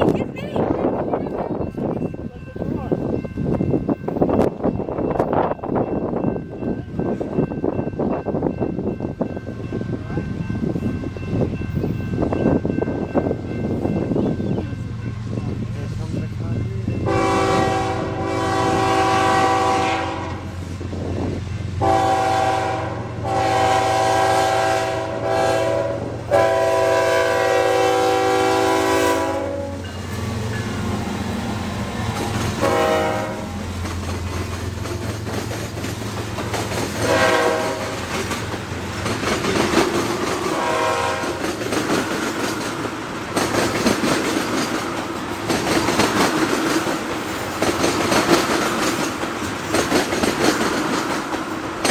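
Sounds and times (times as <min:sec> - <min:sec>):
locomotive engines rumbling: 0:00.0 - 0:51.9
train air horn blasts: 0:17.0 - 0:20.6, 0:21.8 - 0:29.9, 0:32.6 - 0:33.7, 0:37.0 - 0:38.0, 0:40.4 - 0:41.4.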